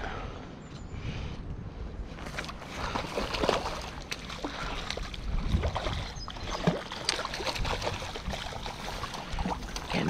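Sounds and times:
fish splashing in water: 2.2 - 10.0.

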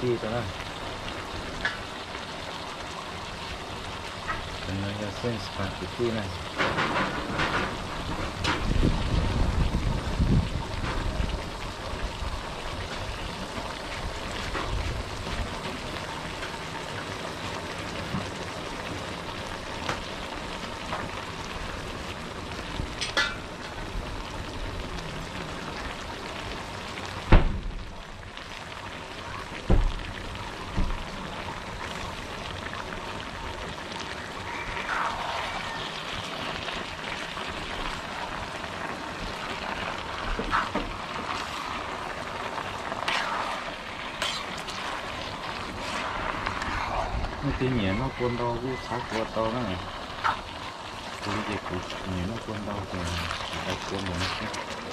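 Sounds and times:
food sizzling in a wok: 0.0 - 54.9
utensil clatter stirring food: 37.7 - 54.9.

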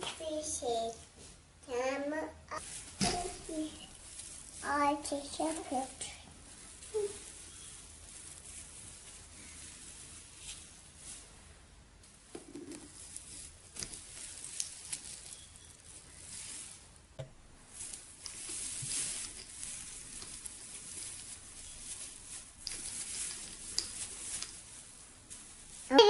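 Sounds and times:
plastic tree needles rustling: 2.6 - 26.0.

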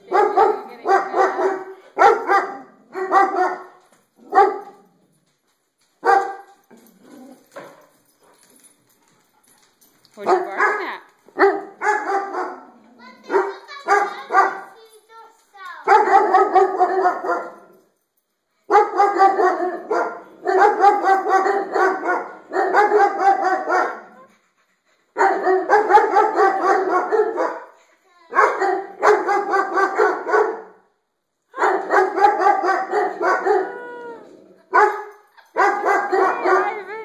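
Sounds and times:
dogs barking: 0.0 - 4.8, 6.0 - 6.5, 10.2 - 14.8, 15.9 - 17.7, 18.7 - 24.3, 25.2 - 27.7, 28.3 - 30.8, 31.6 - 34.0, 34.7 - 37.0.

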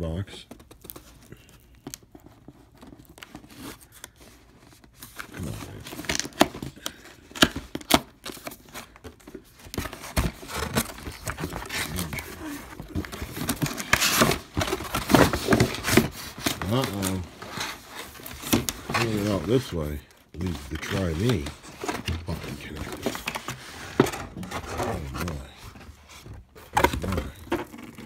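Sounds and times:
paper tearing and crinkling: 9.7 - 28.0.

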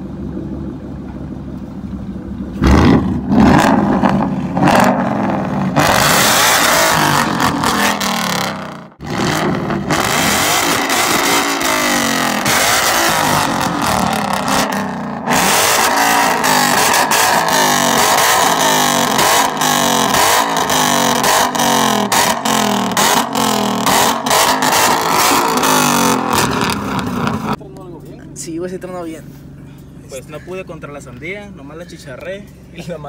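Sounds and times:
car engine revving: 2.2 - 27.6.

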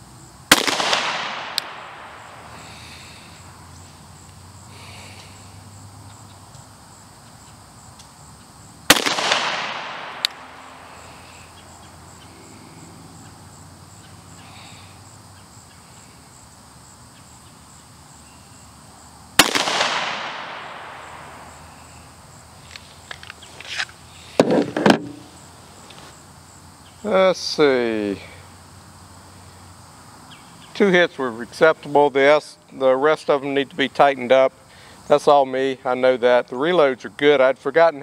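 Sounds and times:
pistol handling clicks: 0.5 - 2.0, 9.0 - 10.4
pistol shot with echo: 0.5 - 2.7, 8.9 - 10.8, 19.4 - 21.8.

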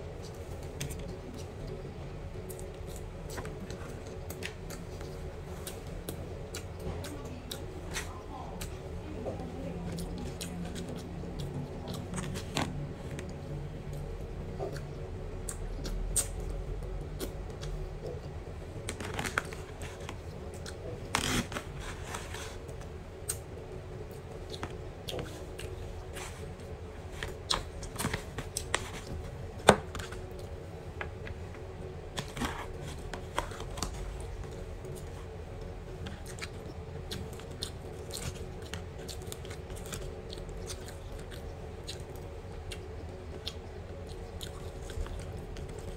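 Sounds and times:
low hum: 0.0 - 45.9
chewing: 2.4 - 23.4, 31.2 - 45.9.

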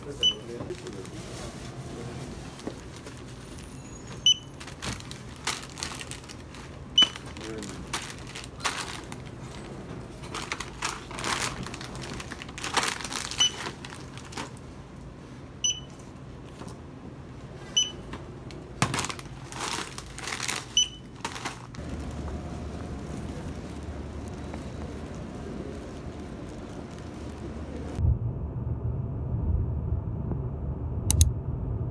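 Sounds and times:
steady low hum: 0.0 - 31.9
barcode scanner beeping: 0.2 - 0.5, 4.2 - 4.6, 7.0 - 7.2, 13.4 - 13.6, 15.6 - 15.9, 17.8 - 18.0, 20.8 - 21.1
plastic packaging crinkling: 0.4 - 1.4, 2.2 - 3.8, 4.5 - 14.7, 18.8 - 28.0.

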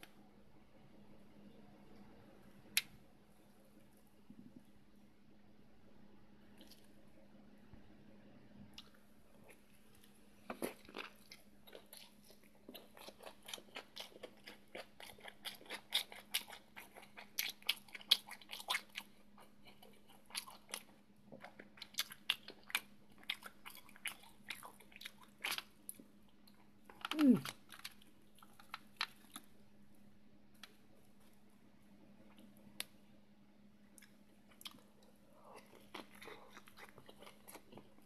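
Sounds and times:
faint steady hum: 0.0 - 38.0
chewing and crunching: 8.8 - 29.6, 33.9 - 38.0.

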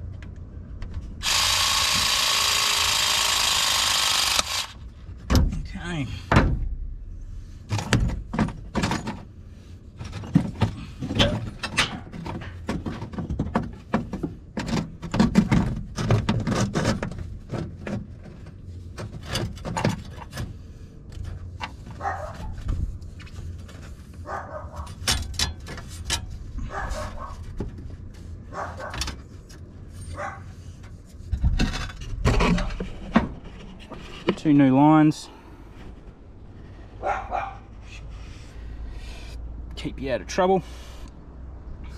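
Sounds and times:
knocks and rubbing of pipes: 7.7 - 28.3
dog barking: 22.0 - 22.6, 24.2 - 25.0, 26.6 - 27.4, 28.5 - 29.0, 30.1 - 30.5, 37.0 - 37.7.

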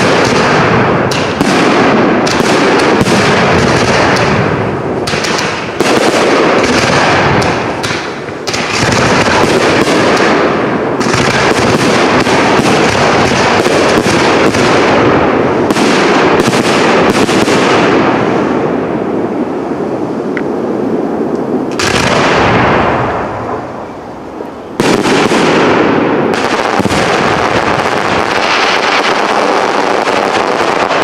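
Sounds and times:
firework shells bursting: 0.0 - 18.6
firework crackling: 0.0 - 31.0.

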